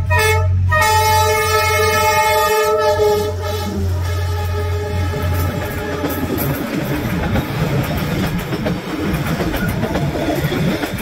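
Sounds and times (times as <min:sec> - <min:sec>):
train wheels rumbling on rail: 0:00.0 - 0:11.0
train clatter and knocks: 0:04.0 - 0:11.0.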